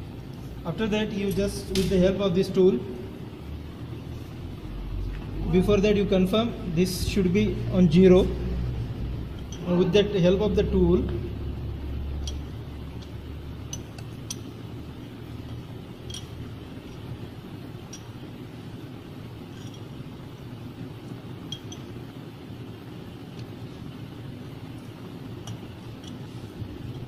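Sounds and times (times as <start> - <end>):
steady low hum: 0.0 - 27.0
spanner clinking on metal: 9.3 - 9.7, 12.1 - 17.2, 19.4 - 20.0, 21.4 - 22.0, 25.4 - 27.0.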